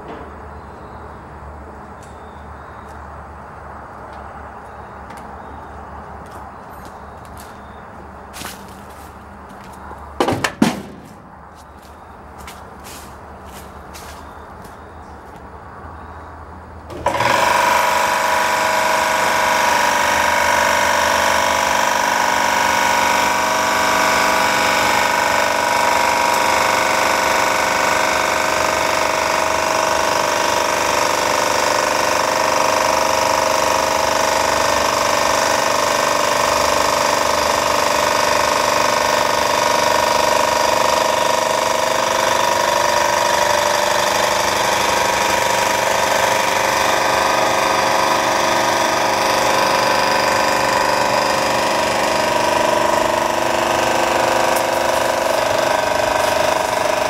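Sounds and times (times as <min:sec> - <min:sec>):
engine droning loudly: 0:43.0 - 0:57.0.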